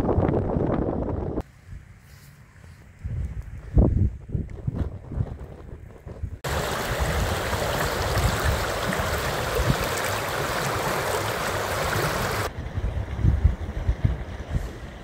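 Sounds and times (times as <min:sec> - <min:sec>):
wind rumble on microphone: 0:00.0 - 0:02.0, 0:02.6 - 0:15.0
stream rushing: 0:06.4 - 0:12.5.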